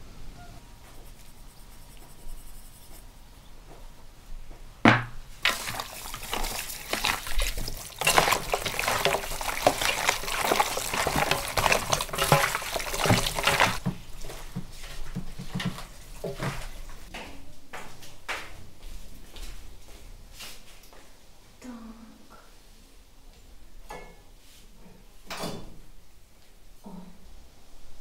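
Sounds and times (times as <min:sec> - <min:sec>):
single knock: 0:04.9 - 0:05.2
wet squelching of raw meat: 0:05.4 - 0:13.8.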